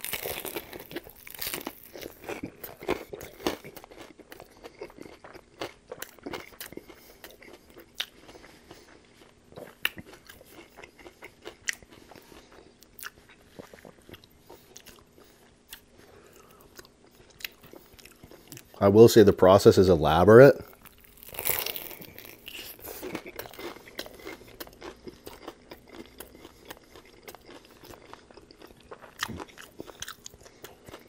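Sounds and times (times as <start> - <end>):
person crunching food: 0.0 - 18.8, 20.6 - 31.0.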